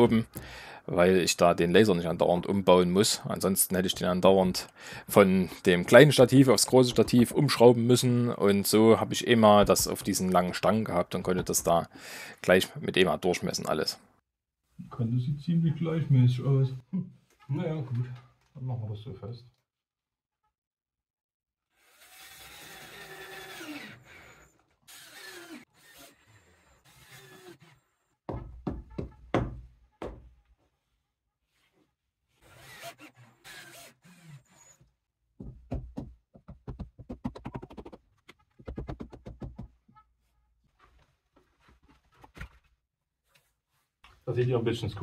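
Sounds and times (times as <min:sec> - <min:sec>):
knocks and thuds on board: 0:28.3 - 0:30.3, 0:35.4 - 0:38.0, 0:38.6 - 0:39.8.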